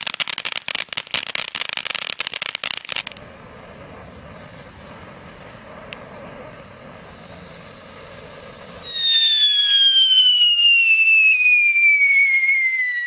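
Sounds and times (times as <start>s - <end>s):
firework hissing: 0.0s - 13.0s
firework whistle falling in pitch: 8.7s - 13.0s.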